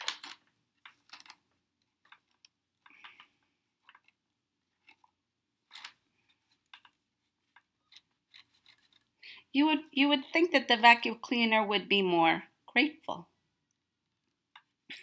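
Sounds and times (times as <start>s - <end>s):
small clicks and scratches: 0.0s - 9.2s, 13.6s - 14.9s.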